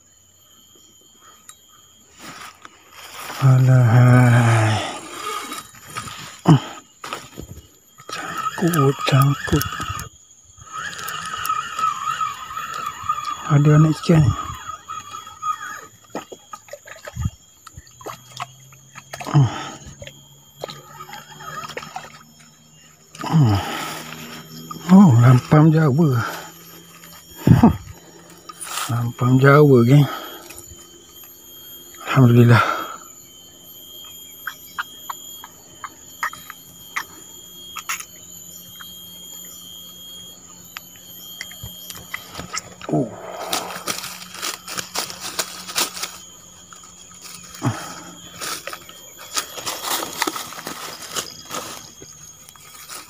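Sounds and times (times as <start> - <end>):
fishing reel whirring: 0.0 - 53.0
high-pitched whine: 0.0 - 53.0
reel clicks: 7.1 - 19.3, 33.0 - 53.0.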